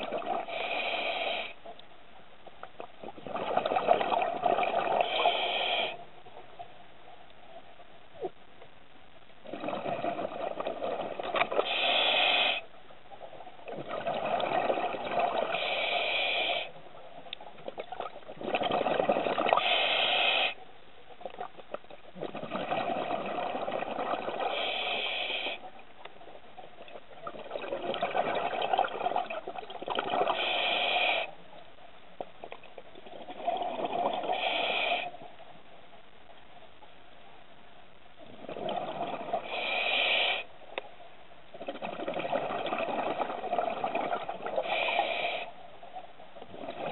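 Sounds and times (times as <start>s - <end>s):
underwater exhaled bubbles: 0.0s - 0.9s, 2.8s - 6.0s, 9.4s - 12.1s, 13.6s - 16.0s, 17.6s - 19.9s, 21.2s - 25.6s, 26.8s - 30.9s, 32.7s - 35.2s, 38.2s - 39.9s, 41.5s - 45.4s, 46.4s - 46.9s.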